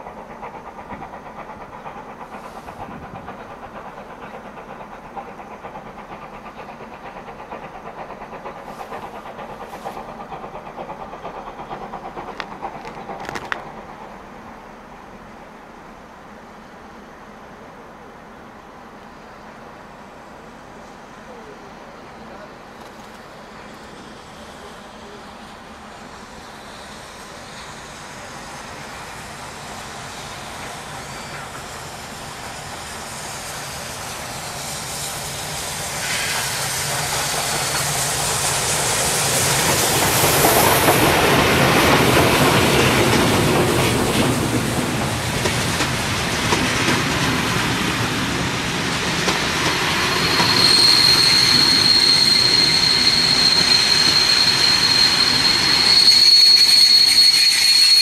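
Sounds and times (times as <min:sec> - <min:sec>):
coaches clattering on rails: 0:00.0 - 0:14.4, 0:36.4 - 0:58.0
steam locomotive passing: 0:00.0 - 0:58.0
high wheel squeal: 0:26.0 - 0:44.6, 0:47.8 - 0:58.0.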